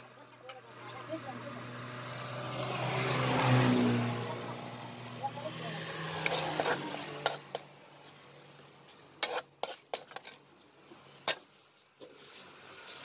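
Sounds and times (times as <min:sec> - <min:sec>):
ladle clinking and scraping on plate: 0:06.2 - 0:07.7, 0:09.1 - 0:10.5.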